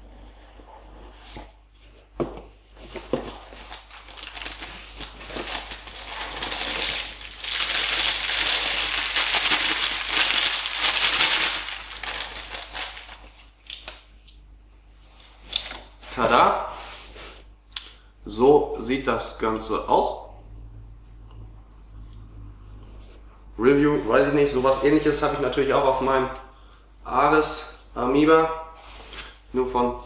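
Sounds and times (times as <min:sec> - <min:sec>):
plastic bag crinkling: 0:02.8 - 0:14.0.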